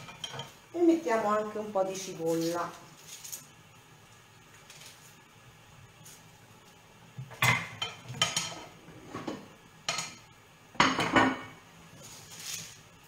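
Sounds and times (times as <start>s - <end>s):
utensils clinking against cookware: 0.0s - 0.6s.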